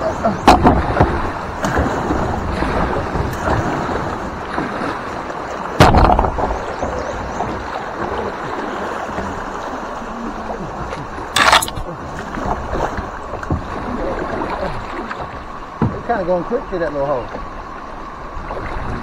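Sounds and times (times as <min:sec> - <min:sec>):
river water rushing: 0:00.0 - 0:19.0
hard knocks against boat: 0:00.4 - 0:01.9, 0:05.8 - 0:08.1, 0:15.8 - 0:16.3.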